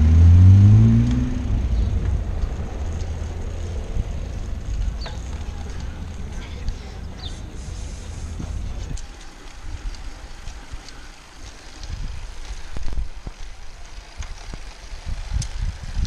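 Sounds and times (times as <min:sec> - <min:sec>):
wind buffeting microphone: 0:00.4 - 0:10.9, 0:11.5 - 0:16.0
tyre and road hiss: 0:01.3 - 0:16.0
sharp clicks and rattles: 0:08.4 - 0:16.0.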